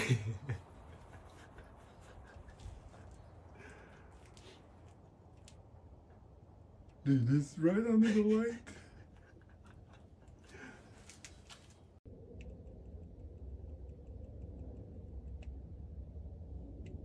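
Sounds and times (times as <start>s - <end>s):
low steady rumble: 0.0s - 17.0s
faint clicking of rodent repeller: 12.3s - 15.8s.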